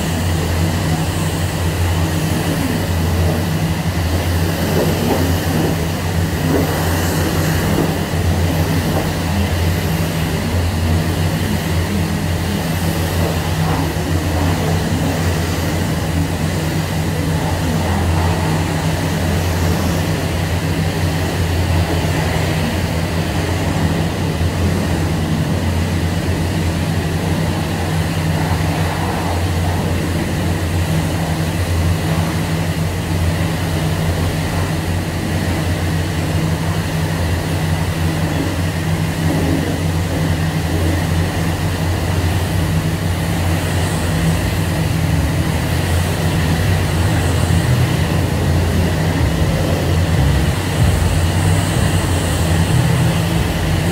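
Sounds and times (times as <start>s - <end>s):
water spraying hiss: 0.0s - 25.2s, 35.5s - 53.9s
car wash machinery humming: 0.0s - 53.9s.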